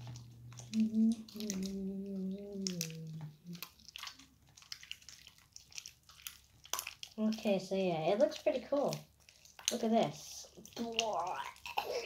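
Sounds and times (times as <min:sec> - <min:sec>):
slime kneaded by hand squishing: 0:00.0 - 0:12.0
boy humming: 0:00.8 - 0:03.5.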